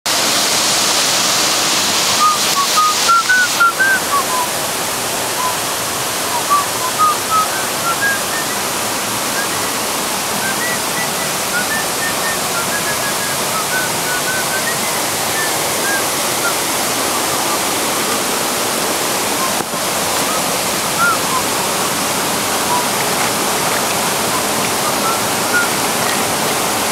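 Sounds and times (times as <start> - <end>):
waterfall and stream rushing: 0.1 - 26.9
short high chirps: 20.2 - 26.4.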